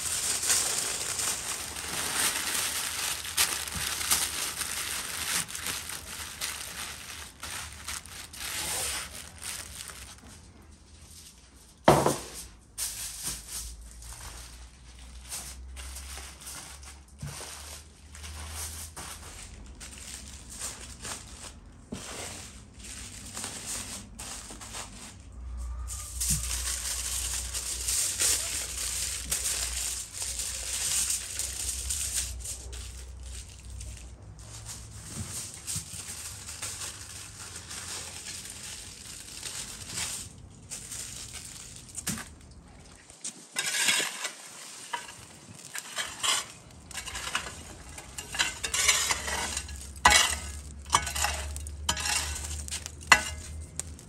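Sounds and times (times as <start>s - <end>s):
foil crinkling: 0.0s - 54.0s
rake scraping embers on brick: 43.5s - 54.0s.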